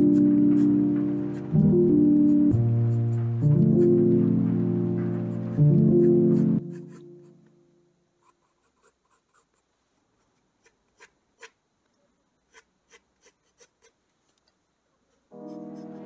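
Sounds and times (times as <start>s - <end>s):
pencil scratching on paper: 0.0s - 4.2s, 5.0s - 7.4s, 8.2s - 11.6s, 12.5s - 14.0s, 15.2s - 16.0s.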